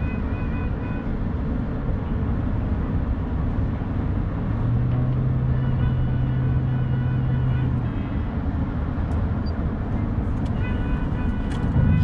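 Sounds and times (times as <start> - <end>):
road and engine rumble: 0.0 - 12.0
low drone: 11.5 - 12.0.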